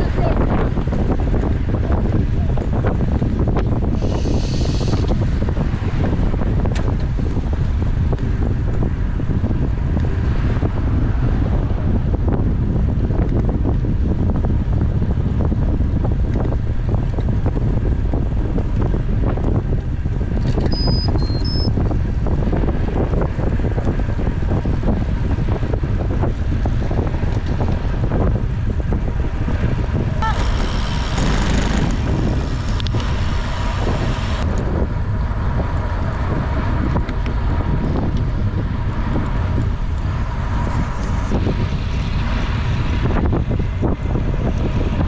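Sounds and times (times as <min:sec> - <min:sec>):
wind buffeting microphone: 0:00.0 - 0:45.0
short high beeps: 0:20.7 - 0:21.7.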